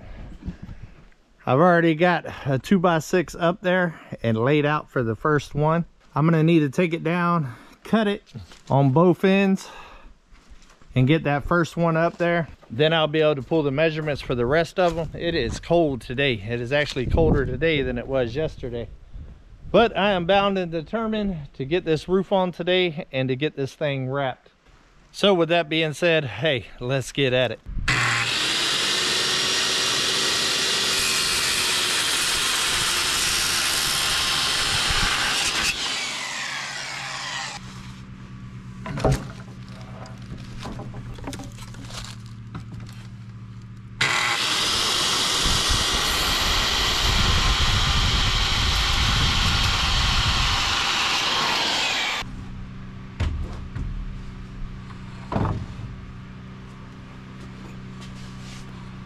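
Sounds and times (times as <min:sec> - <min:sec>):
power saw cutting wood: 0:27.9 - 0:38.1, 0:44.0 - 0:52.3
steady low hum: 0:37.5 - 0:44.4, 0:52.1 - 0:59.0.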